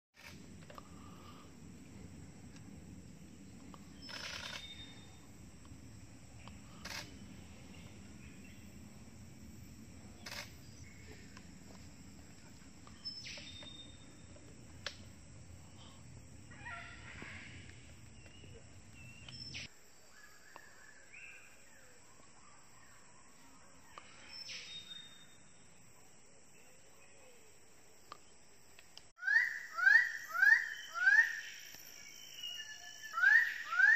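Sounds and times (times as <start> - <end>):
birds calling: 3.5 - 5.3
rapid rattling bird call: 4.0 - 5.0.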